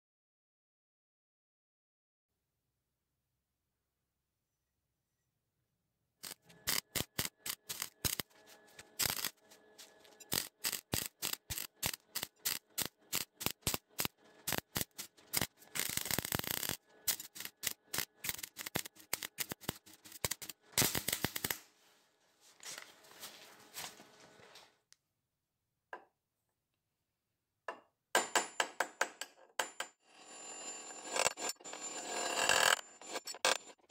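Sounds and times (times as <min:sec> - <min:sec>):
welding arc crackle: 0:06.2 - 0:09.4, 0:10.2 - 0:21.7.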